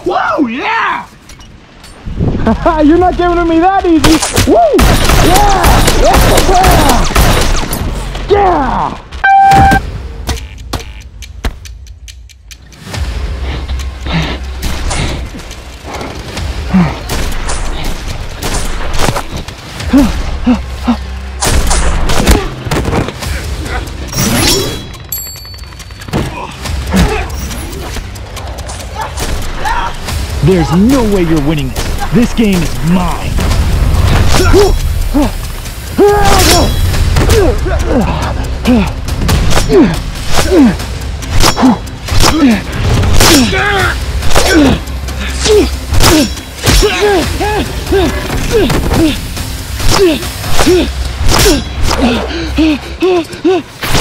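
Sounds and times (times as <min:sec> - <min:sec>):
background music: 0:00.0 - 0:54.0
people grunting and yelling: 0:04.3 - 0:07.4, 0:08.1 - 0:09.2, 0:16.5 - 0:18.1, 0:19.8 - 0:24.9, 0:26.1 - 0:30.8, 0:34.1 - 0:54.0
high electronic tones: 0:09.2 - 0:09.8.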